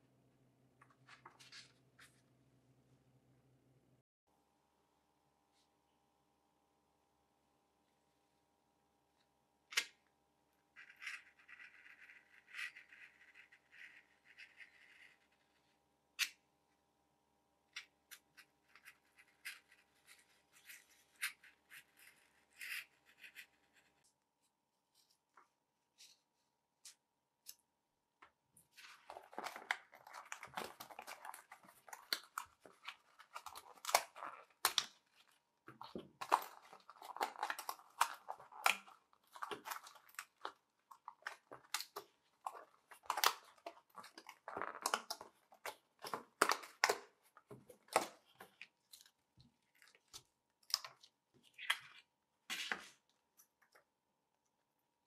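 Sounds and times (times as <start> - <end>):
crackling and tearing: 29.0 - 47.1.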